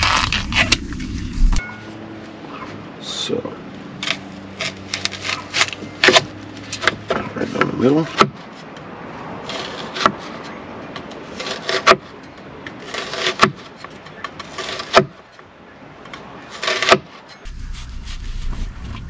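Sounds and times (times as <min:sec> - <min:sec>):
knife sawing through food: 0:11.3 - 0:11.9, 0:12.8 - 0:13.4.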